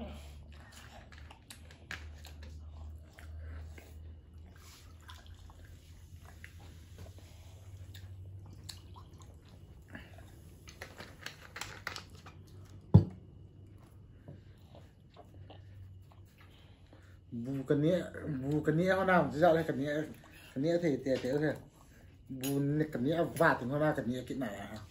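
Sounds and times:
eating noises: 0.0s - 12.9s, 13.6s - 20.6s
faint fizzing: 4.4s - 10.5s.

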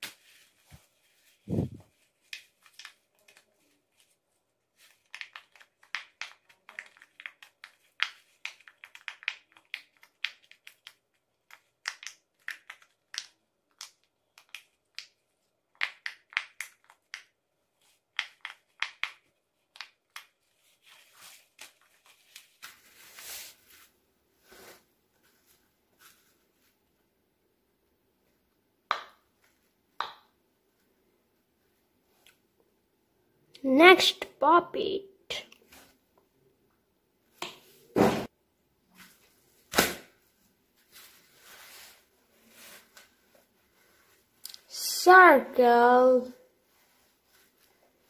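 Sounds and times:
silicone toy sheet rustle: 0.0s - 26.8s, 40.4s - 44.8s, 45.6s - 48.0s.

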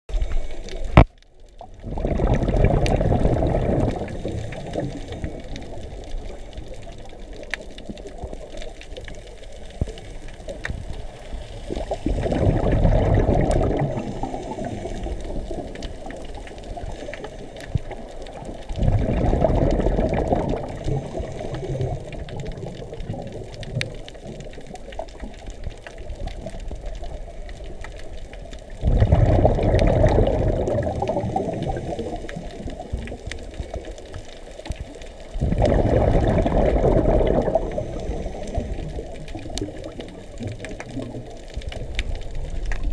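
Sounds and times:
underwater hiss: 0.1s - 1.0s, 2.0s - 7.2s, 9.1s - 18.5s, 19.1s - 23.2s, 28.8s - 34.7s, 35.4s - 40.3s
faint clicks: 0.1s - 12.4s, 13.3s - 42.9s
regulator exhalation bubbles: 1.8s - 5.5s, 12.0s - 15.1s, 18.8s - 22.7s, 28.8s - 33.1s, 35.4s - 39.9s.

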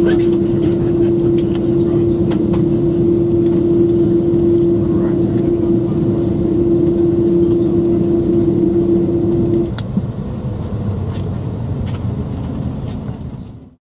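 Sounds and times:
steady tone: 0.0s - 9.8s
low rumble: 0.0s - 13.7s
aircraft cabin ventilation hum: 0.0s - 13.8s.

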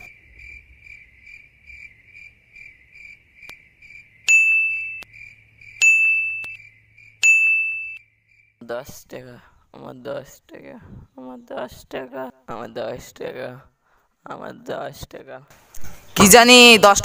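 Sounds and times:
cricket chirping: 0.0s - 14.8s
loud electronic beeps: 5.8s - 6.6s.

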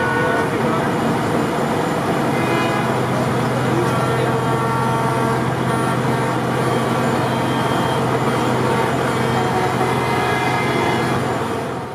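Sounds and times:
truck and car horns: 0.0s - 0.8s, 2.2s - 11.9s
idling engines hum: 0.0s - 11.9s.

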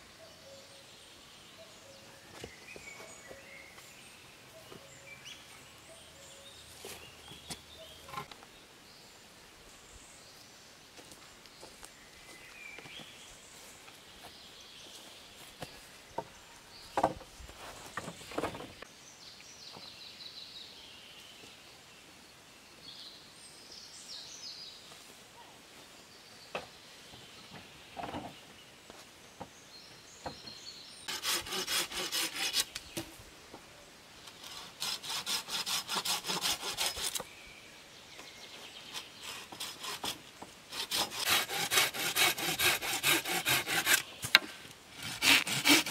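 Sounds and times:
wooden poles knocking together: 17.0s - 17.3s, 18.0s - 18.8s
hand saw cutting wood: 31.1s - 32.8s, 34.3s - 37.3s, 38.9s - 44.4s, 45.0s - 45.9s.

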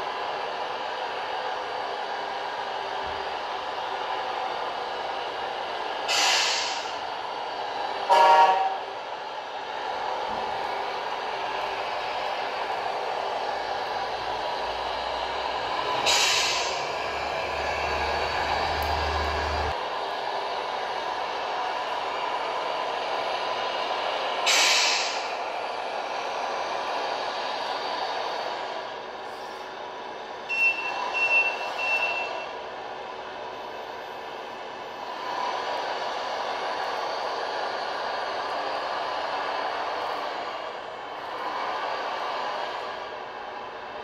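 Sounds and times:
simulated diesel engine: 0.0s - 44.0s
air brake hiss: 6.1s - 7.0s, 15.9s - 17.2s, 24.4s - 25.4s
high reversing beeps: 30.5s - 32.5s.

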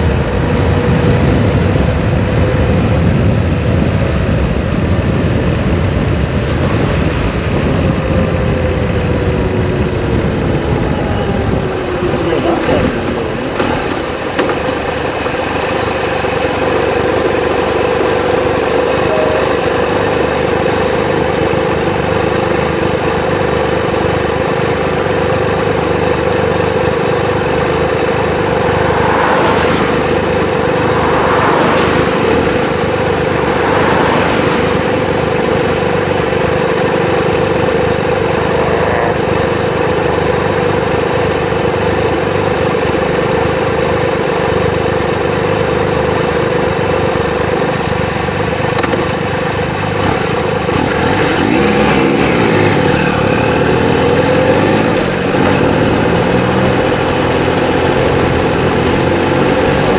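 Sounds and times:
motorcycle engine humming: 0.0s - 59.9s
wind and road noise: 0.0s - 59.9s
rushing swells of noise: 25.7s - 38.6s.

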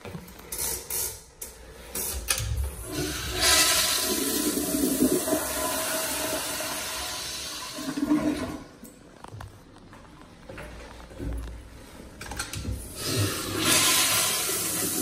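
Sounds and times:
toilet flushing: 2.7s - 8.8s, 12.6s - 15.0s.

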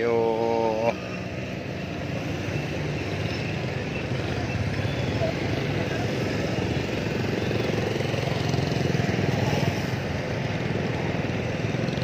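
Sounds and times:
motorcycle engine running: 4.4s - 12.0s.

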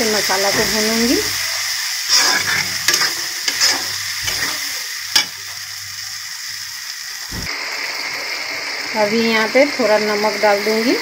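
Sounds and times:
masala sizzling in hot oil: 0.0s - 11.0s
steel spatula scraping: 0.5s - 5.4s.

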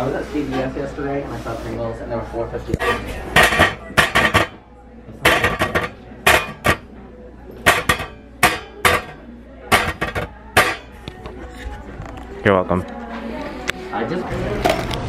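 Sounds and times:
hands drumming on wood and metal: 7.7s - 10.9s.

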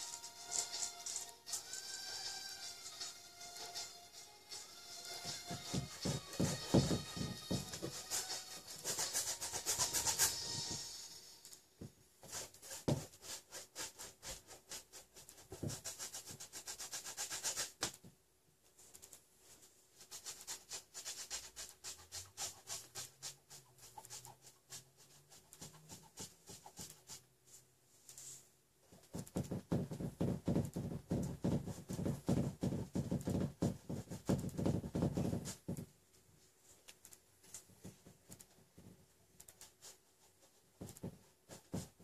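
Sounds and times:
paintbrush scrubbing on canvas: 5.0s - 11.0s, 12.2s - 18.0s, 18.8s - 28.5s.

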